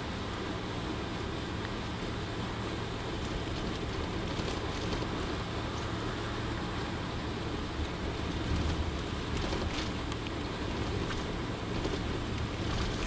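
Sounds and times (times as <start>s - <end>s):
engine and tyre rumble in cabin: 0.0s - 13.0s.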